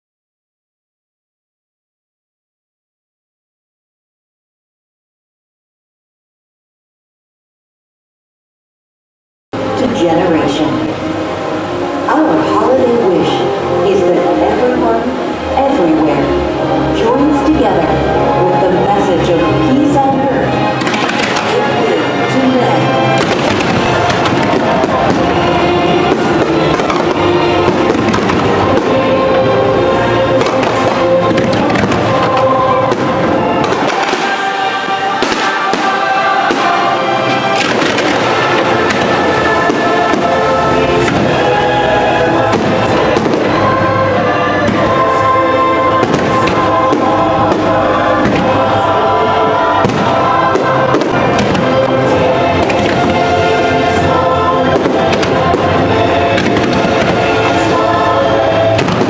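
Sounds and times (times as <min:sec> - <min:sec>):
choir singing: 0:09.6 - 0:59.0
loud show music: 0:09.6 - 0:59.0
fireworks bangs and crackling: 0:20.7 - 0:22.3, 0:23.0 - 0:29.3, 0:30.3 - 0:45.3, 0:45.9 - 0:48.8, 0:49.8 - 0:57.9, 0:58.6 - 0:59.0.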